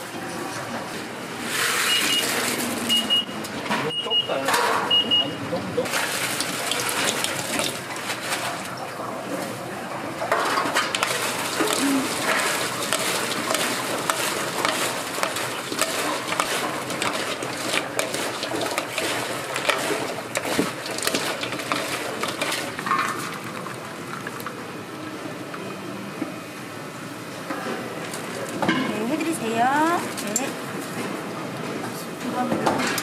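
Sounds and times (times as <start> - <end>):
steady noisy background: 0.0 - 33.0
utensils knocking and scraping cookware: 10.3 - 23.4.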